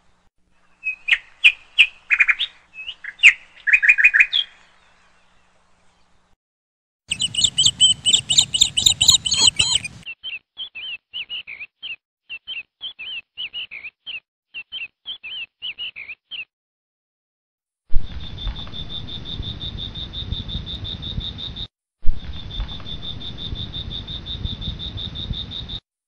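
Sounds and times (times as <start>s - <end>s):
small birds chirping: 0.6s - 6.2s, 7.1s - 16.5s.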